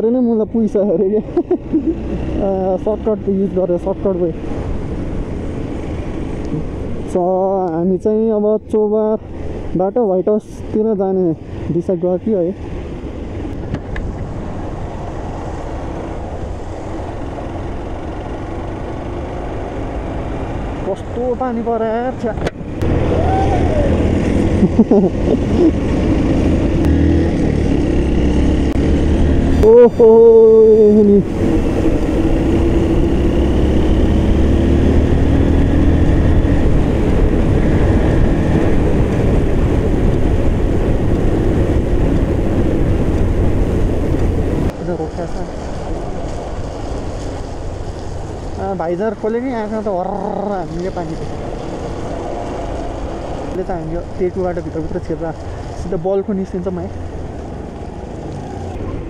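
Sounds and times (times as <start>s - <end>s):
tyre noise on wet road: 22.5s - 59.0s
wind rushing: 22.6s - 44.8s
motorcycle engine running: 22.8s - 55.7s.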